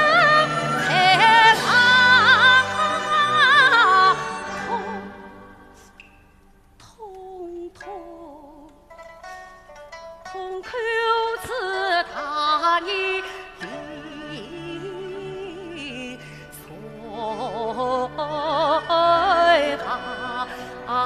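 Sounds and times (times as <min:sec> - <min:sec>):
orchestral accompaniment: 0:00.0 - 0:06.0
woman singing opera aria: 0:00.0 - 0:06.0, 0:06.8 - 0:08.8, 0:10.3 - 0:21.0.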